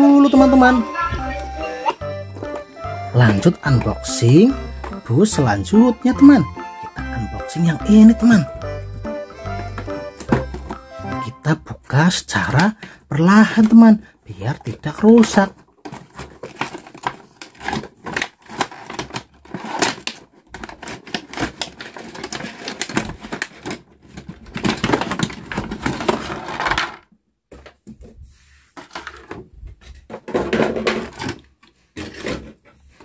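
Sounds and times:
plastic wrapping crinkling: 15.0s - 26.8s.

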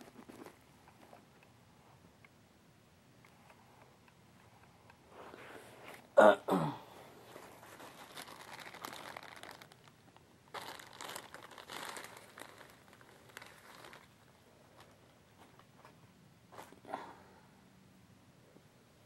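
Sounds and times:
plastic crinkling: 7.2s - 16.0s.

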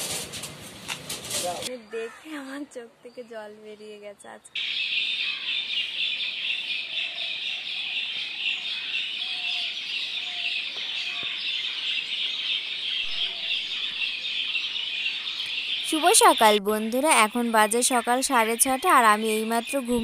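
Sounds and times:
small birds twittering: 1.7s - 20.0s
faint low bird calls: 4.6s - 16.6s.

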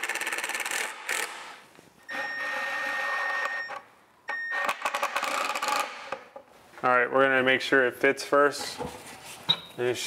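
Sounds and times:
impact driver driving screws: 0.0s - 1.6s.

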